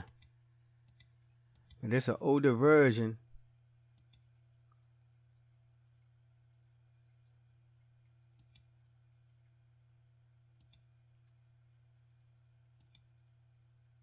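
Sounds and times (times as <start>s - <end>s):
computer mouse clicks: 0.0s - 1.8s, 3.9s - 4.3s, 8.3s - 9.4s, 10.5s - 10.9s, 12.7s - 13.2s
low steady hum: 0.0s - 14.0s.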